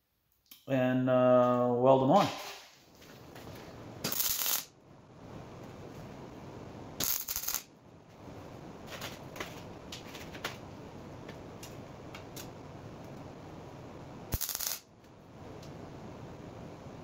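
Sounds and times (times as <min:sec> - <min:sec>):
welder arc crackling: 0:02.2 - 0:04.8, 0:07.0 - 0:07.8, 0:08.8 - 0:13.3, 0:14.0 - 0:15.8
steel pieces clicking: 0:04.1 - 0:04.7, 0:07.0 - 0:07.7, 0:14.3 - 0:14.8.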